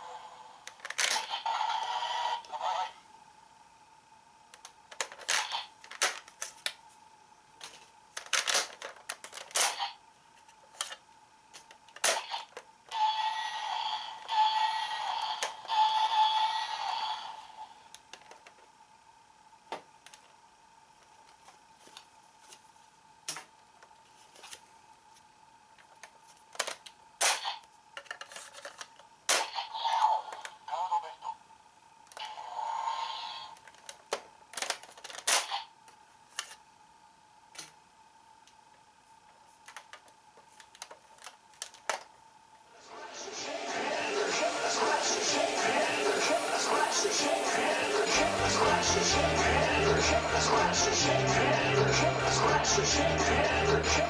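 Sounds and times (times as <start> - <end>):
toy electronic sound effect: 1.0 - 3.0, 5.3 - 5.7, 9.5 - 10.0, 12.0 - 17.8, 29.3 - 31.4, 32.2 - 33.6.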